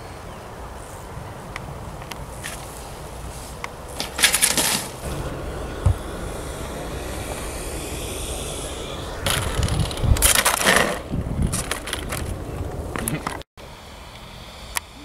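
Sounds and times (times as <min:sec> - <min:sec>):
plane clattering on asphalt: 0:03.9 - 0:06.3, 0:09.3 - 0:13.4
model plane motor whine: 0:05.0 - 0:10.9
wind thumping on microphone: 0:05.0 - 0:13.4.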